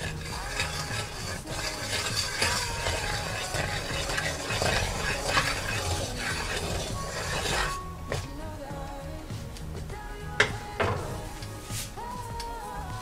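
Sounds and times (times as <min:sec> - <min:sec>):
butter sizzling in a skillet: 0:00.0 - 0:07.8
wooden spatula scraping a pan: 0:00.0 - 0:08.3.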